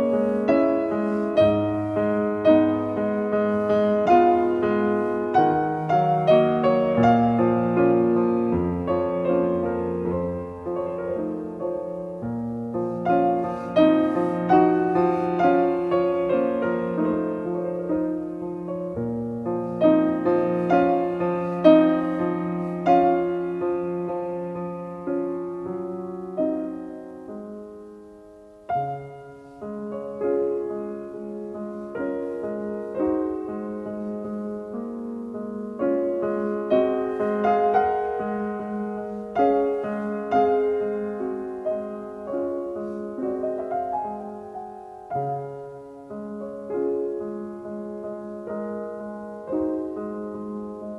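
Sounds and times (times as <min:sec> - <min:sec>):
slow solo piano: 0:00.0 - 0:50.9.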